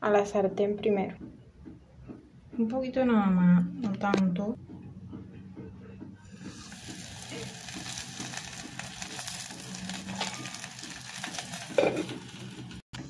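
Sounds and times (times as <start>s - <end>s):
oil sizzling in frying pan: 6.4s - 12.8s.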